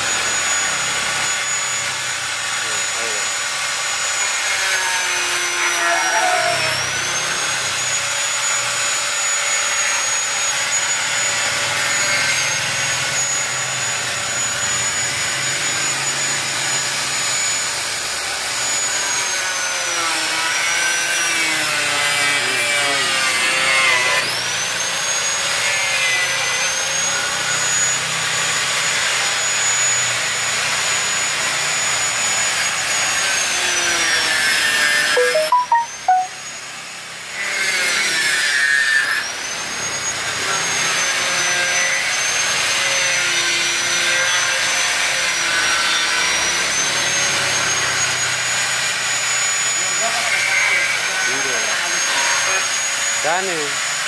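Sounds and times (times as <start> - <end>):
angle grinder cutting metal: 0.0 - 29.3, 40.5 - 54.0.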